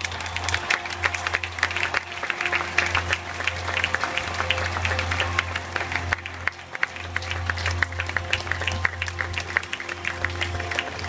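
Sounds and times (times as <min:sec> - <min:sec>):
audience applauding: 0:00.0 - 0:11.0
music with long held notes: 0:00.0 - 0:11.0.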